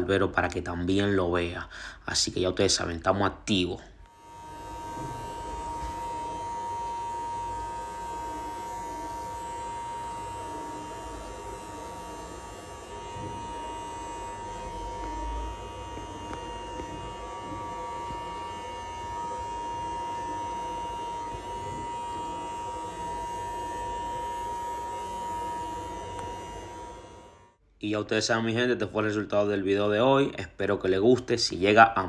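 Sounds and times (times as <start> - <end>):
electric hair clipper running: 4.0 - 27.6.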